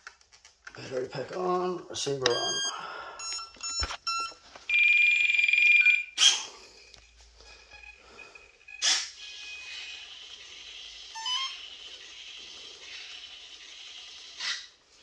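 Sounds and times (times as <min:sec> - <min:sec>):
short electronic beeps: 0:02.3 - 0:04.8
steady high beep: 0:02.3 - 0:06.1.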